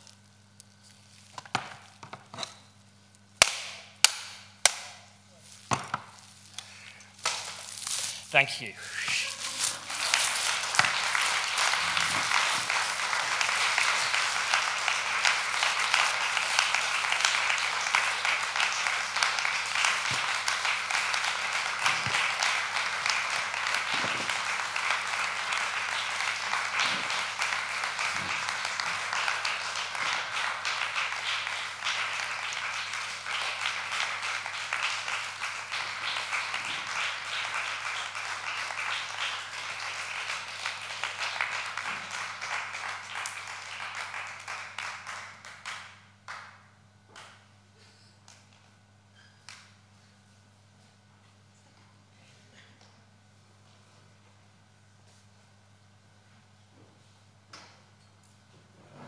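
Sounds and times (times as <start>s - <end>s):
audience applauding: 8.3s - 46.6s.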